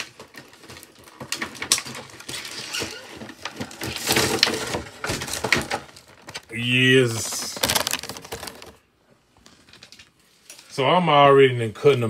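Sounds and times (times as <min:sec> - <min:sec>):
objects clicking and knocking: 0:00.0 - 0:08.8
rustling of objects: 0:00.0 - 0:10.8.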